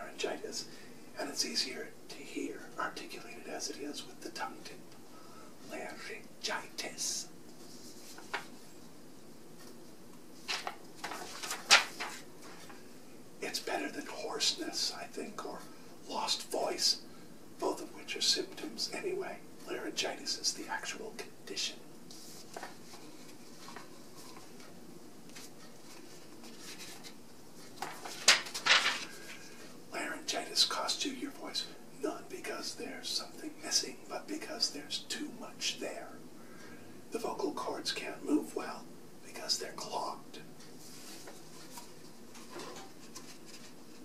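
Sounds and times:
room hiss: 0:00.0 - 0:44.0
paper rustling and crinkling: 0:07.6 - 0:08.7, 0:10.4 - 0:12.8, 0:22.1 - 0:24.7, 0:25.3 - 0:29.6, 0:40.8 - 0:44.0.

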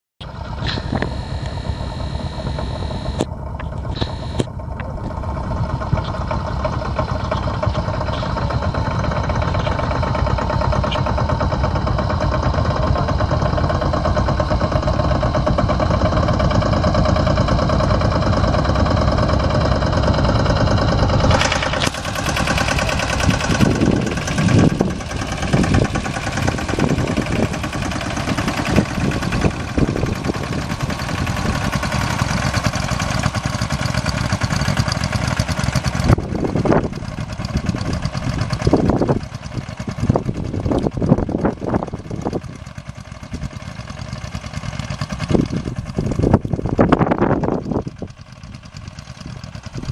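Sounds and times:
small tractor engines running: 0:00.2 - 0:49.9.

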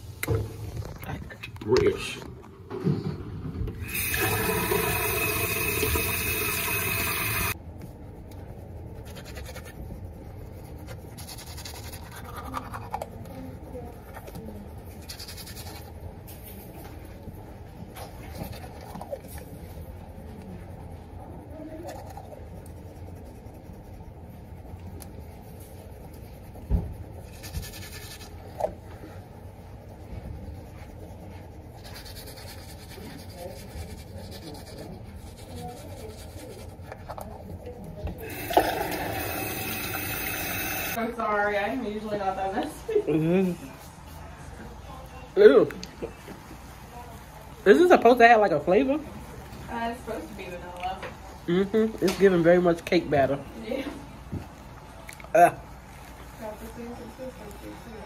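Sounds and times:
running water rushing: 0:03.9 - 0:07.6, 0:38.2 - 0:41.0
toothbrush scrubbing teeth: 0:03.9 - 0:07.6, 0:08.2 - 0:41.0.

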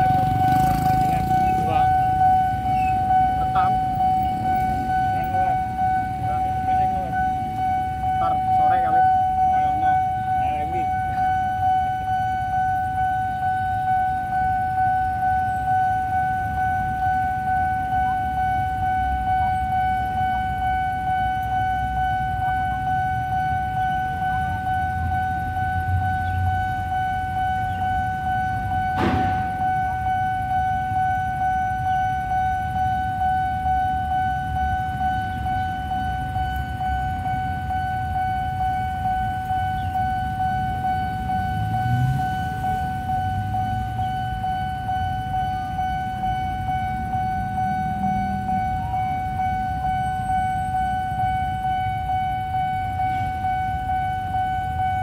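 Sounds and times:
level crossing alarm tone: 0:00.0 - 0:55.0
sharp knock: 0:29.0 - 0:29.8.

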